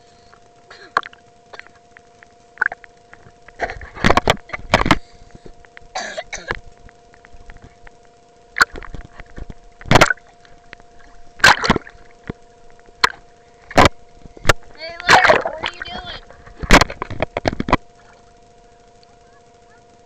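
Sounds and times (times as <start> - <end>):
faint two-tone hum: 0.0 - 20.0
water splashing against camera: 6.8 - 18.4.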